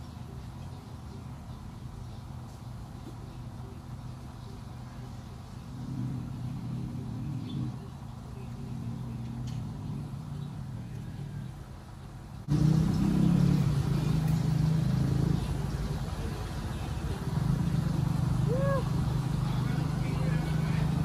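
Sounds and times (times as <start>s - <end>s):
low motor hum: 12.4s - 21.0s.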